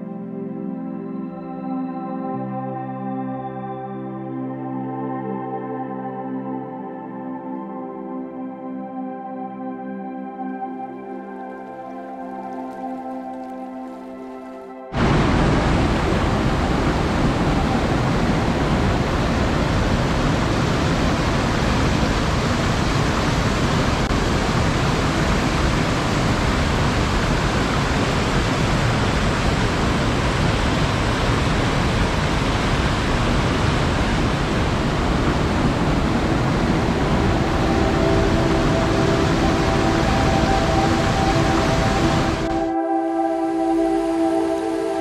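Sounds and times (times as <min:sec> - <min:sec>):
waterfall pouring into a pool: 0:15.0 - 0:42.5.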